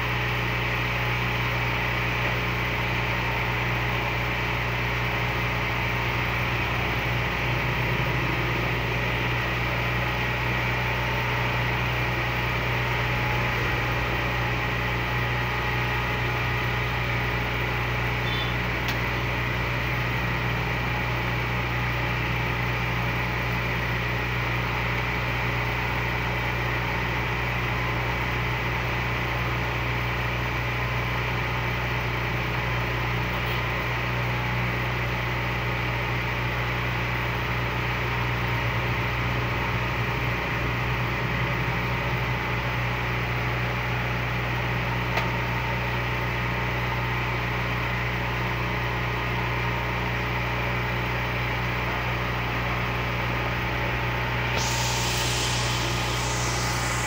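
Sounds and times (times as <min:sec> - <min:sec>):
low mechanical hum: 0:00.0 - 0:34.0, 0:51.2 - 0:57.0.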